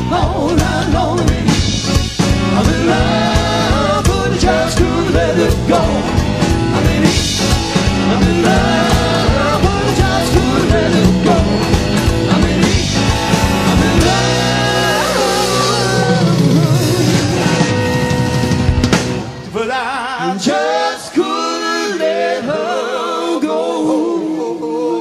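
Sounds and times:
electric guitar: 0.0 - 19.6
keyboard bass: 0.0 - 19.9
rock band playing: 0.0 - 20.0
drums: 0.0 - 21.6
person singing: 6.8 - 17.6.

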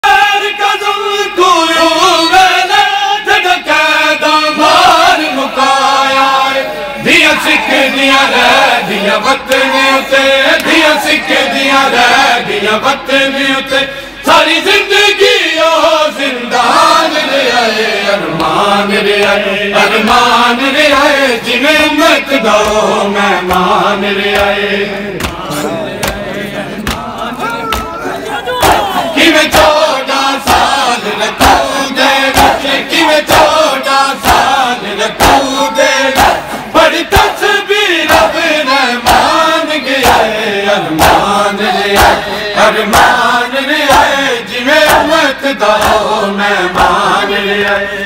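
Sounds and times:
men chanting in unison: 0.0 - 48.0
chest-beating slaps: 25.2 - 28.0, 40.9 - 41.3, 45.8 - 46.2.

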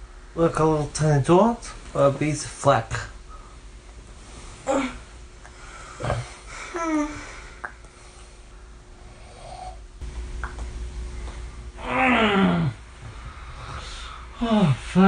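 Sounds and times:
sleep noises: 3.3 - 10.0, 11.0 - 15.0.

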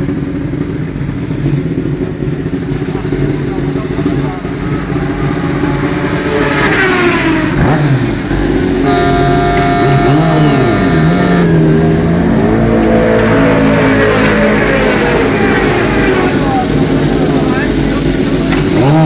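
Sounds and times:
motorcycle engines revving: 0.0 - 19.0
steady high tone: 8.8 - 11.8.

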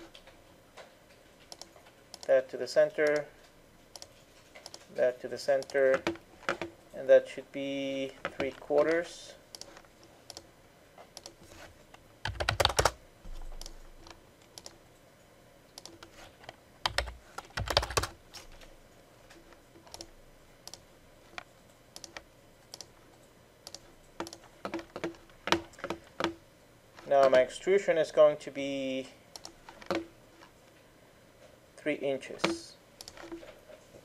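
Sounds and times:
keyboard keys clicking: 9.6 - 10.5, 12.2 - 14.8, 16.8 - 18.2, 21.4 - 26.4, 29.4 - 30.1.

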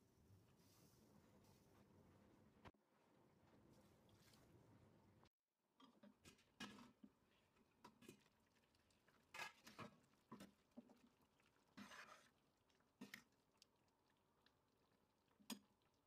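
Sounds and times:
spoon stirring wet fruit: 5.8 - 16.0.

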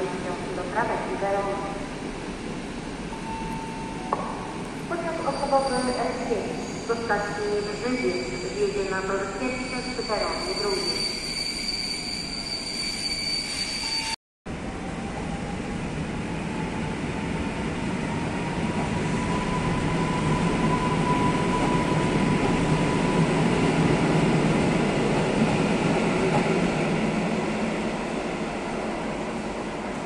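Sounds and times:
train rumbling along track: 13.8 - 30.0.

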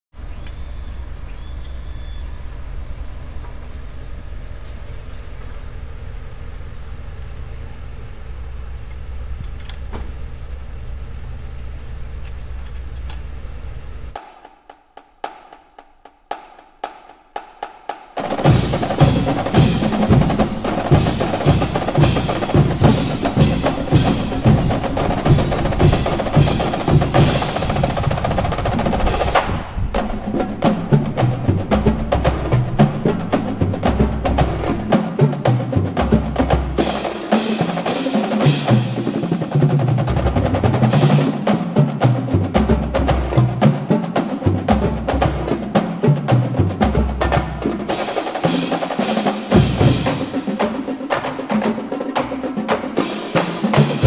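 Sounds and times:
steady low rumble: 0.2 - 14.2, 18.2 - 37.3
fast drum percussion: 14.2 - 54.0.

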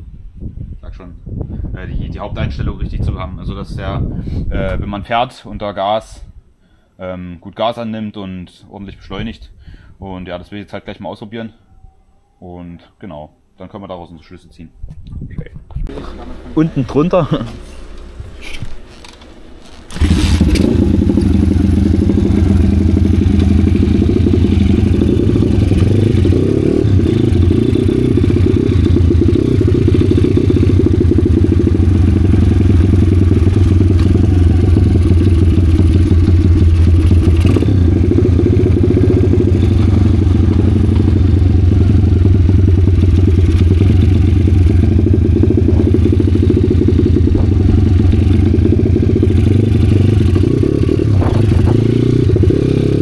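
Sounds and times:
motorbike engine running: 19.9 - 53.0.

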